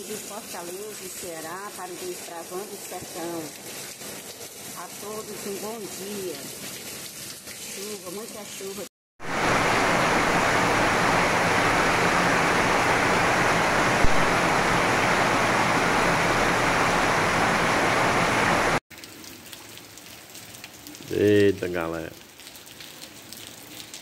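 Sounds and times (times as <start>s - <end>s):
heavy rain falling: 9.2s - 18.8s.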